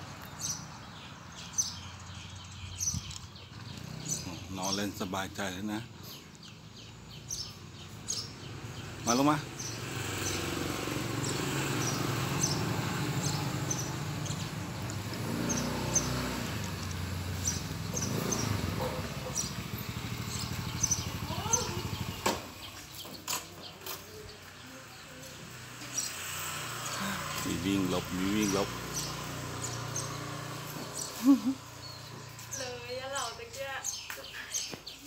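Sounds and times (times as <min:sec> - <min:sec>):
engine running: 0:07.8 - 0:23.1, 0:23.8 - 0:33.0.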